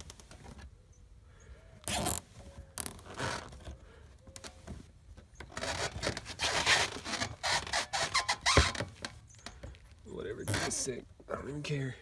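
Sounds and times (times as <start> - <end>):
zip tie clicks: 1.8 - 2.2
zip ties zipping rasp: 1.8 - 3.7, 5.5 - 8.7.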